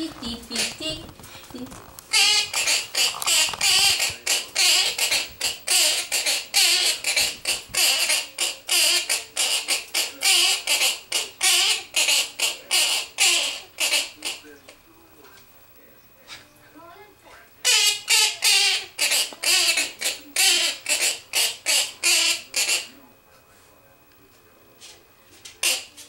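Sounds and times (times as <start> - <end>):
parrot calling: 0.1 - 1.1, 2.1 - 14.7, 17.6 - 23.0, 25.6 - 26.0.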